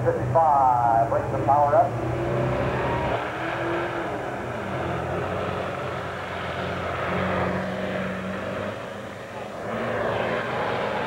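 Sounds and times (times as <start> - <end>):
tractor diesel engine under full load: 0.0 - 11.0.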